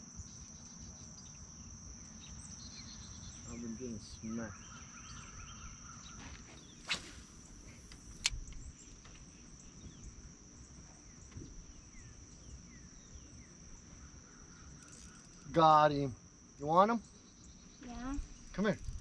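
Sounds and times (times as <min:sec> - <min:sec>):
insects droning: 0:00.0 - 0:19.0
sharp clicks: 0:06.9 - 0:08.6.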